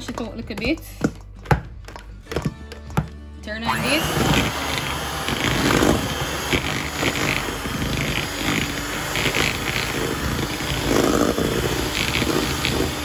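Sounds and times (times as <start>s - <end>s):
electric hand mixer running: 2.3s - 13.0s
beaters scraping and clattering bowl: 3.8s - 13.0s.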